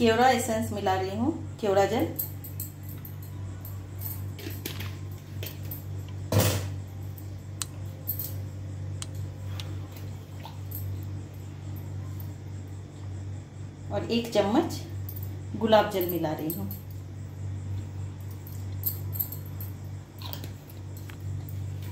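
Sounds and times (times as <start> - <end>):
steady low hum: 0.0 - 21.9.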